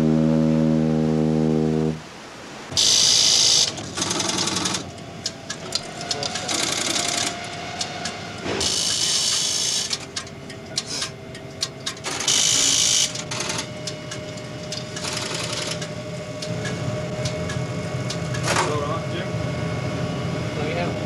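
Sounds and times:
faint steady hum: 0.0 - 21.0
small machine running: 2.7 - 4.9, 5.7 - 10.2, 10.8 - 21.0.

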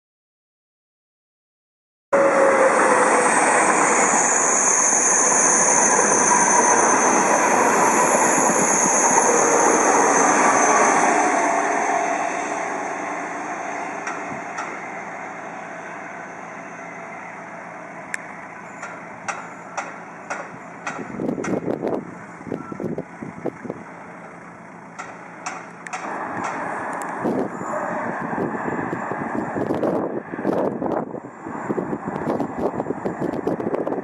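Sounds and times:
passenger train passing: 2.2 - 34.0.

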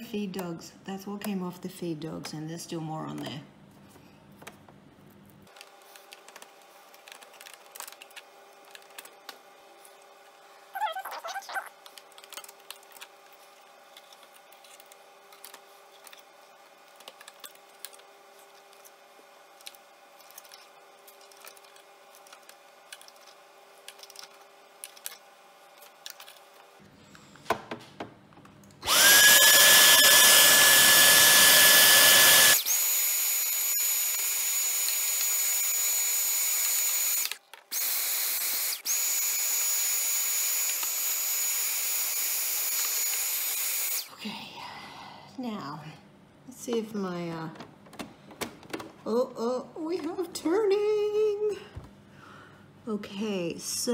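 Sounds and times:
vacuum cleaner whining: 28.8 - 44.2.

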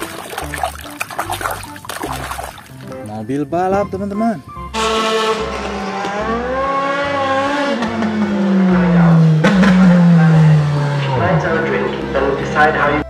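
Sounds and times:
race car engine at speed: 5.3 - 13.0.

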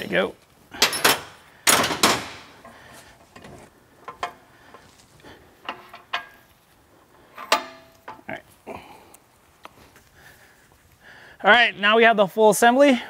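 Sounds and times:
metal tools clinking: 0.8 - 2.1, 7.3 - 8.3.

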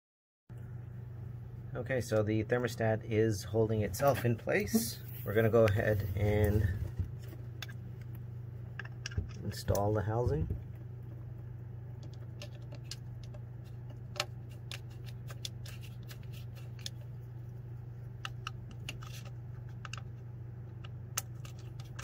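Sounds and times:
steady low hum: 0.5 - 22.0.

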